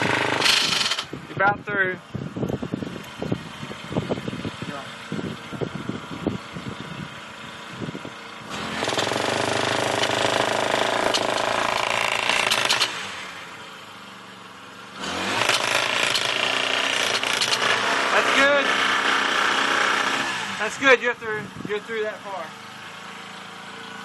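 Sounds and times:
boring tool running: 0.0s - 1.2s, 8.5s - 13.1s, 15.0s - 20.6s.

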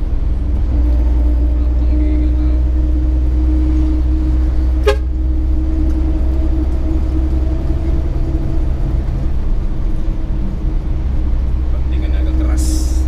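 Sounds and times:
diesel engine droning: 0.0s - 13.0s
short horn toot: 4.8s - 5.1s.

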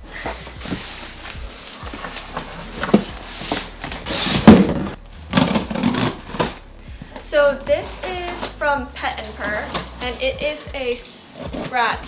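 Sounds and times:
cardboard box rustling and scraping: 0.1s - 6.6s.

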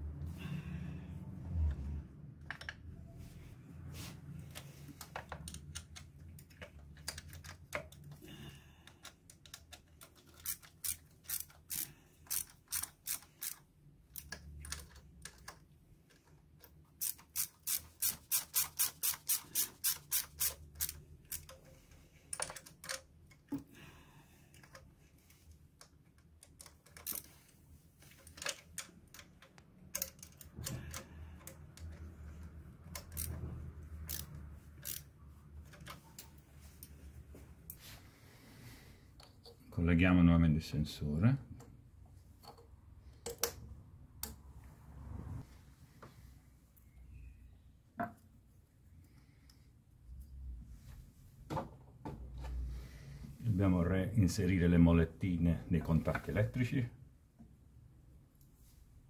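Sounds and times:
hand ratchet clicking: 8.9s - 15.6s, 17.0s - 21.8s, 32.8s - 33.3s, 34.0s - 35.1s.

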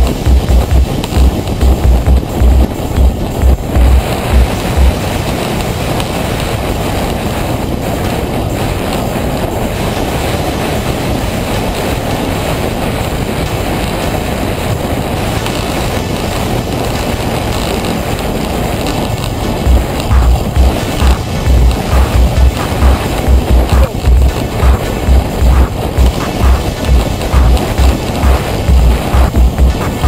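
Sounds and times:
heavy low thumps: 0.0s - 5.7s, 19.0s - 30.0s
wind on microphone: 0.0s - 30.0s.

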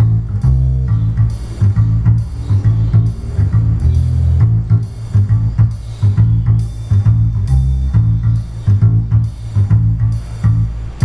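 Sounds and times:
jazzy instrumental music: 0.0s - 11.0s.

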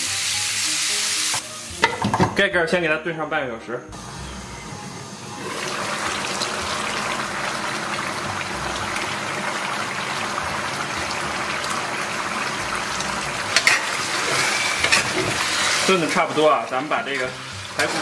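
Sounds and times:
pot bubbling: 5.4s - 18.0s.

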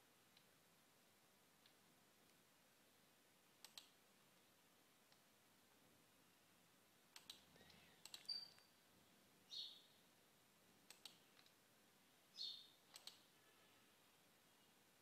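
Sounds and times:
faint computer mouse clicks: 3.6s - 4.0s, 7.1s - 8.7s, 10.9s - 11.6s, 12.9s - 13.3s
faint high-pitched chirps: 7.6s - 8.8s, 9.5s - 10.0s, 12.3s - 14.8s.

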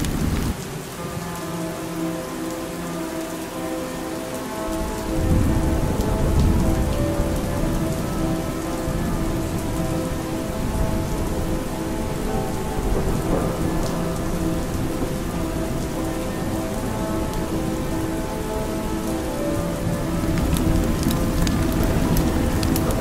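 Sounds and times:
rain falling: 0.0s - 23.0s
thunder rumbling: 4.5s - 23.0s.

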